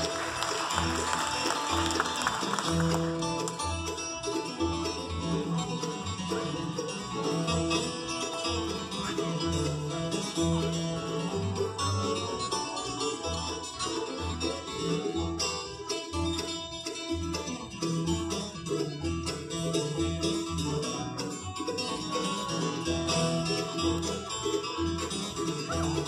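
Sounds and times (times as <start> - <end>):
bluegrass band playing: 0.0 - 26.0
upright bass: 0.0 - 26.0.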